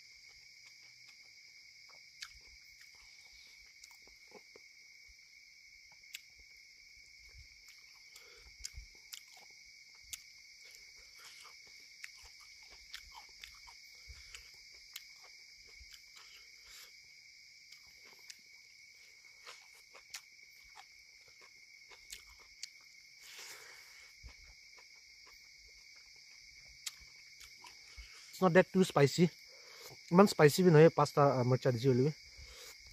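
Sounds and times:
person chewing food: 0:00.0 - 0:04.8, 0:05.9 - 0:28.4, 0:32.2 - 0:32.9
night insects chirping: 0:00.0 - 0:32.9.

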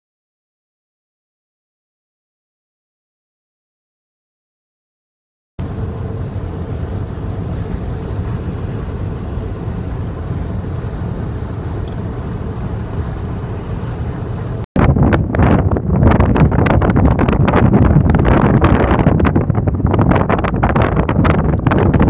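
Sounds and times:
car road and wind noise: 0:05.6 - 0:22.0.

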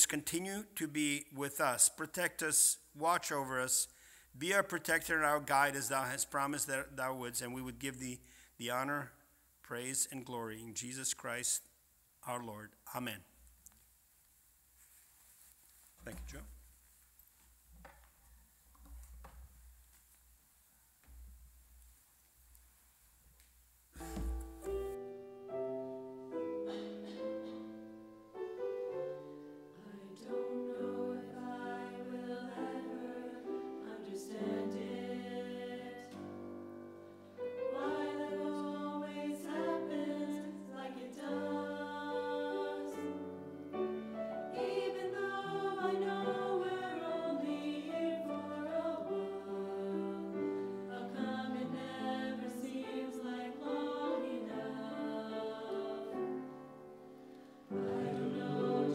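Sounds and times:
choir singing a hymn: 0:25.5 - 0:58.9.

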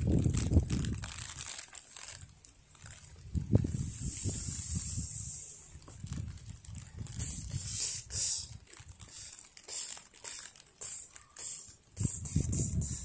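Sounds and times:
rustling in dry leaves and grass: 0:00.0 - 0:12.8.

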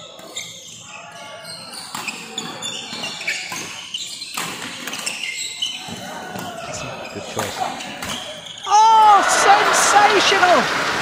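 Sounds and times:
shoes squeaking on court: 0:00.0 - 0:08.7
murmur of voices: 0:05.4 - 0:11.0.

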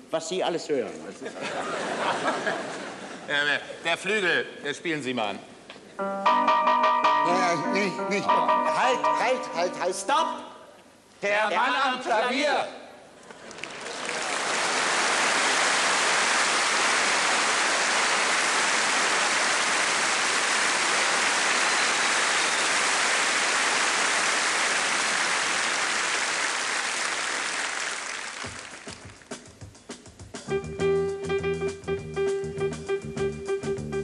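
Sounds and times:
audience applauding: 0:13.2 - 0:29.4.

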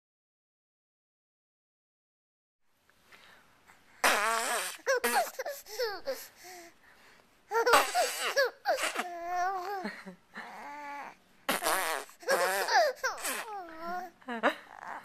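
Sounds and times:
baby laughing: 0:04.0 - 0:06.3, 0:07.5 - 0:10.7, 0:11.5 - 0:14.1.

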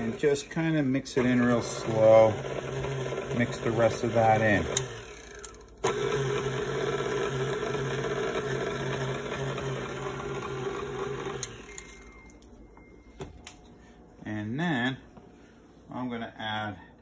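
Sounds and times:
stand mixer motor running: 0:00.0 - 0:00.5, 0:01.2 - 0:11.8.

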